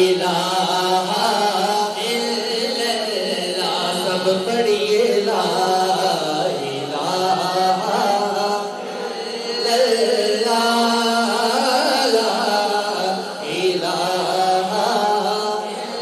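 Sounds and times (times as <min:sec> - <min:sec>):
man singing devotional chant: 0:00.0 - 0:16.0.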